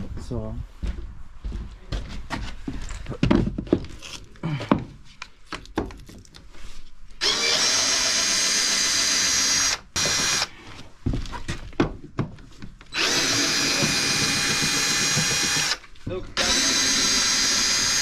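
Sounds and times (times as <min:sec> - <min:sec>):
cordless drill running: 0:07.2 - 0:10.5, 0:12.9 - 0:15.8, 0:16.4 - 0:18.0.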